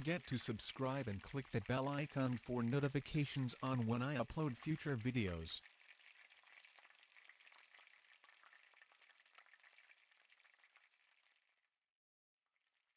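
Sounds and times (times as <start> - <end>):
faint crackling hiss: 0.0 - 10.1.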